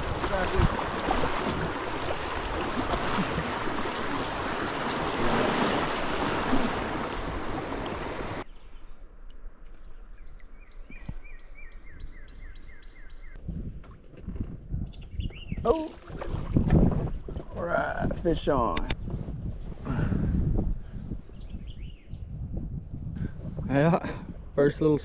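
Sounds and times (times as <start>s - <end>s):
rushing splashing river water: 0.0s - 8.4s.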